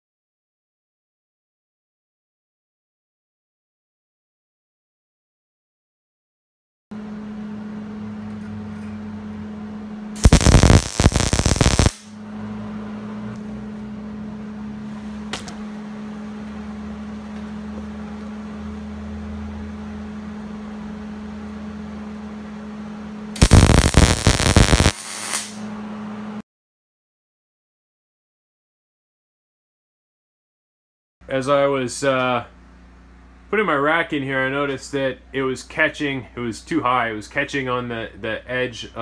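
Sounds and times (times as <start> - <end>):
electrical hum: 7.0 - 26.4
welding crackling sizzle: 10.2 - 12.2, 23.4 - 25.7.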